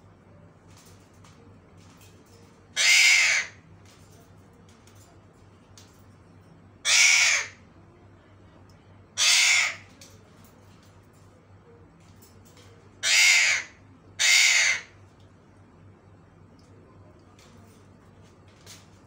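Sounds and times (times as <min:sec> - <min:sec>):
parakeet harsh calls: 0:02.8 - 0:03.6, 0:06.8 - 0:07.6, 0:09.2 - 0:09.9, 0:13.0 - 0:15.0.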